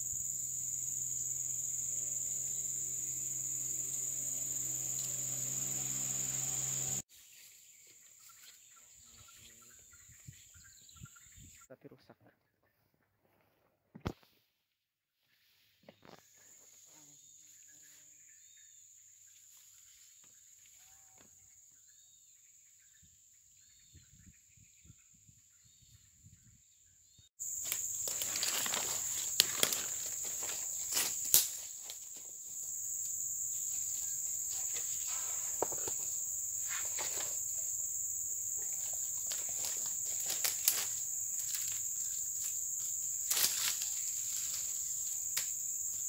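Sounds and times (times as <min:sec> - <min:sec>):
insect drone: 0:00.0 - 0:07.7, 0:15.9 - 0:46.0
faint bird chirps: 0:07.4 - 0:13.1
dry leaves crackling: 0:27.4 - 0:32.2, 0:38.8 - 0:45.0.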